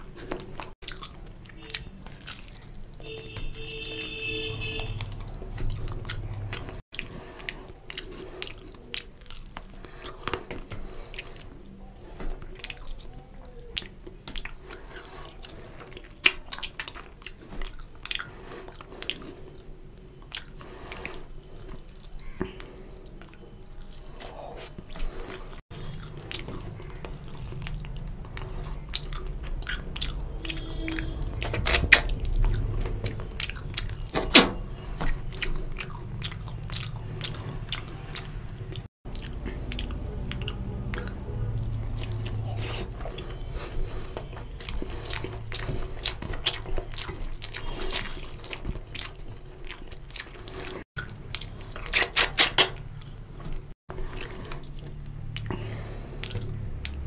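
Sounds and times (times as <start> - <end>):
chewing and smacking: 0.0 - 57.0
wet squelching of food: 0.0 - 57.0
sharp clicks and crunches: 31.3 - 35.7, 51.8 - 53.2.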